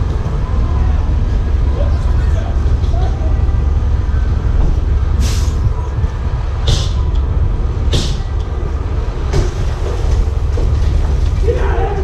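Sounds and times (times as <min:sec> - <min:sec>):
truck engine idling: 0:00.0 - 0:12.0
short air hisses: 0:05.2 - 0:05.6.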